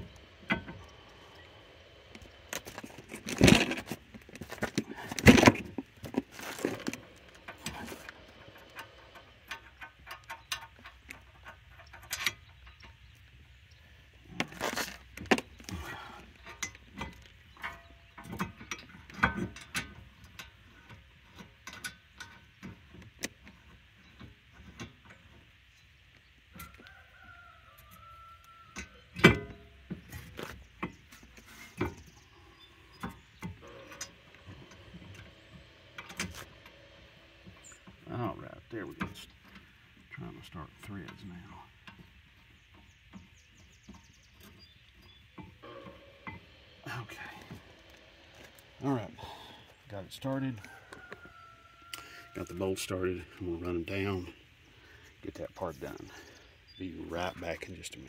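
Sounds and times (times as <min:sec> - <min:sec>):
metal clinks and rattles: 0:05.4 - 0:13.0.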